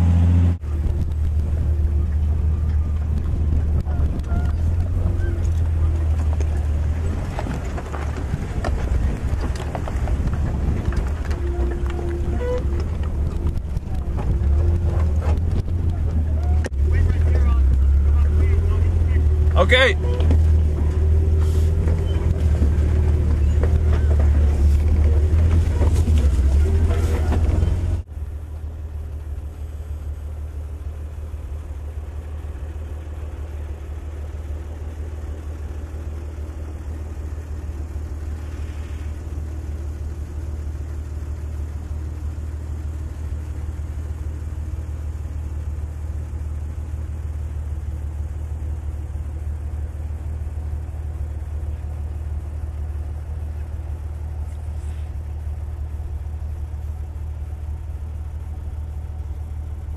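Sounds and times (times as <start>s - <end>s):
vehicle engine idling: 0.0s - 59.9s.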